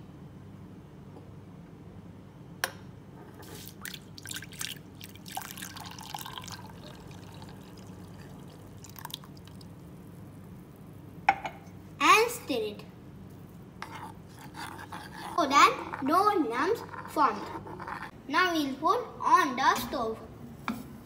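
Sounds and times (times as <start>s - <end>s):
milk pouring into a pan: 3.6s - 10.2s.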